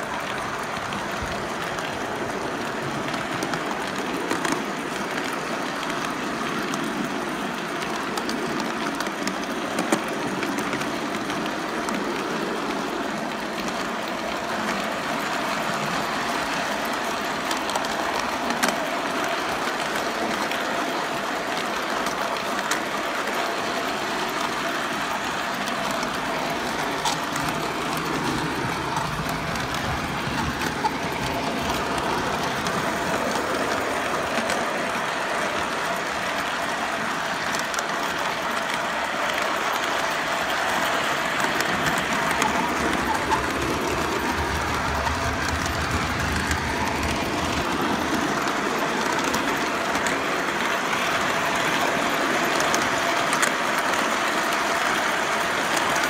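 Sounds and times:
model train rolling on track: 0.0s - 56.0s.

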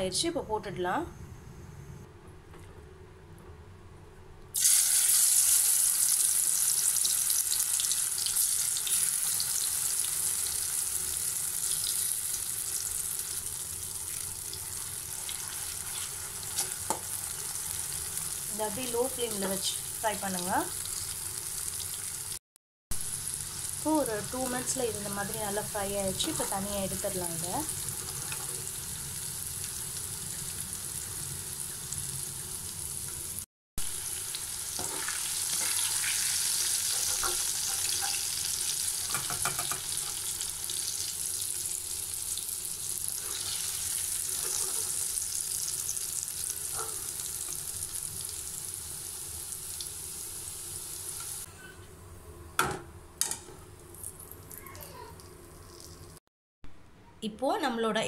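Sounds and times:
potatoes sizzling in hot oil: 4.6s - 22.4s, 23.0s - 51.5s
spoon stirring through frying food: 34.7s - 40.3s, 43.2s - 45.3s.

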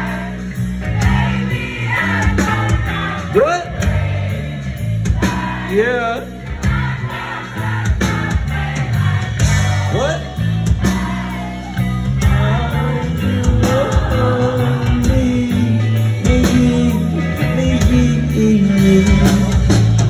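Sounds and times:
live rock band playing: 0.0s - 20.0s
person singing: 11.8s - 20.0s.

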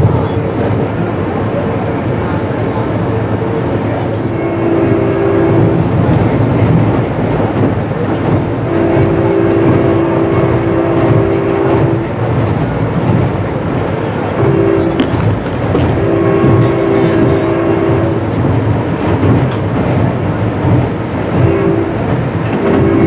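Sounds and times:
train cars rumbling on rails: 0.0s - 23.0s
locomotive horn blasts: 4.2s - 6.0s, 8.6s - 12.2s, 14.3s - 18.4s, 21.3s - 23.0s.

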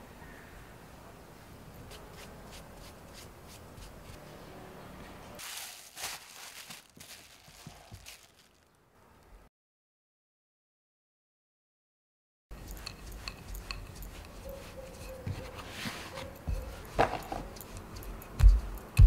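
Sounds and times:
hands rubbing pastry dough: 5.4s - 8.5s, 12.6s - 18.2s
dough rustling with clicks: 5.4s - 8.7s.

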